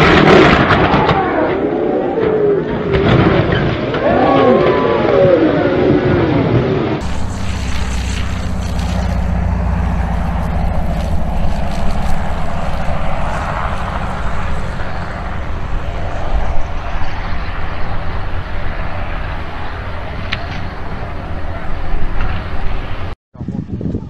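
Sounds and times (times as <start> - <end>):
light aircraft engine drone: 5.8 - 23.1.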